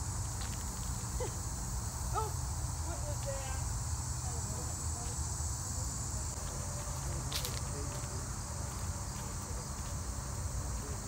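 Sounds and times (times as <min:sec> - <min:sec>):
insects chorus: 0:00.0 - 0:11.0.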